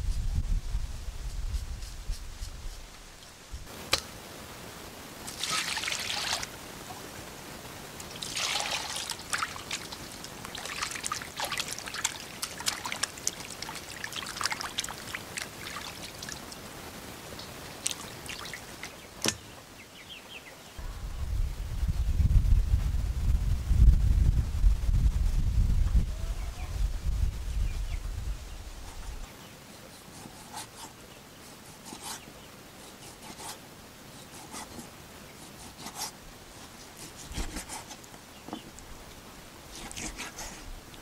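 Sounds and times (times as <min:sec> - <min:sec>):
water splashing and trickling: 0:05.2 - 0:07.0, 0:08.0 - 0:19.4.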